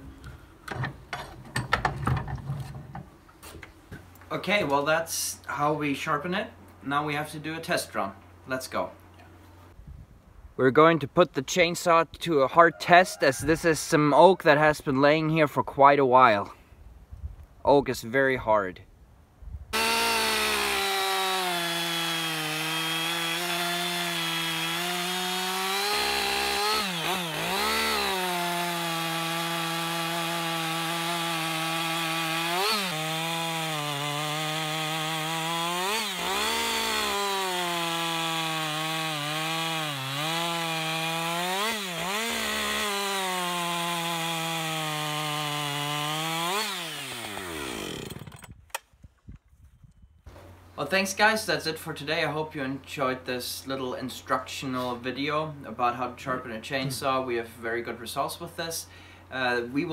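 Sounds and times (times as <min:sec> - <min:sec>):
chainsaw cutting log: 0:19.8 - 0:48.8.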